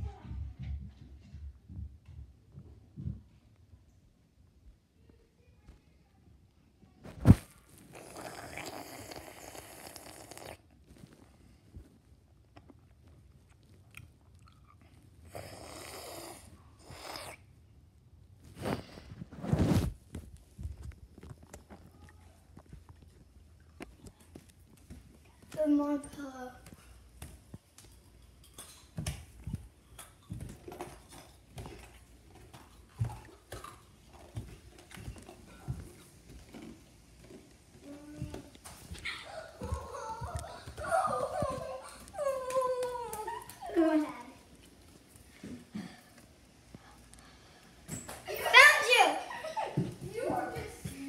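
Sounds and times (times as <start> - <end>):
footsteps on wooden floor: 22.5 - 28.1, 28.9 - 45.9, 49.4 - 51.0.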